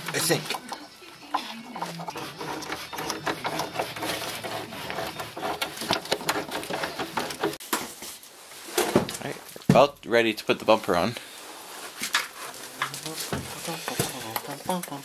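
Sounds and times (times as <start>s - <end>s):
hand tools clicking and rattling: 1.7s - 7.6s.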